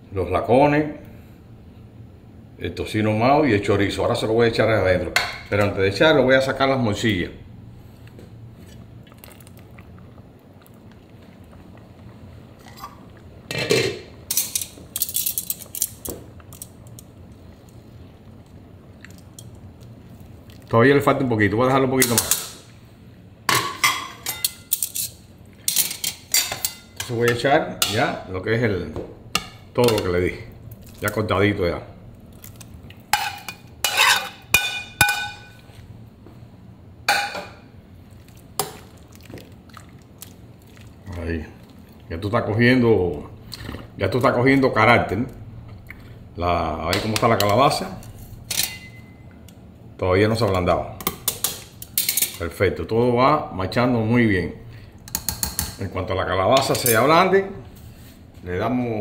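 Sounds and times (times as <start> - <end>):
utensils clanking against pot: 12.6 - 16.7, 23.5 - 28.1, 33.1 - 35.6, 51.0 - 52.4.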